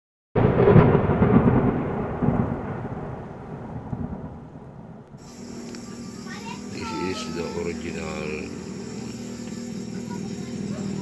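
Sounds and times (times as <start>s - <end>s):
thunder-like rumble: 0.4s - 5.8s.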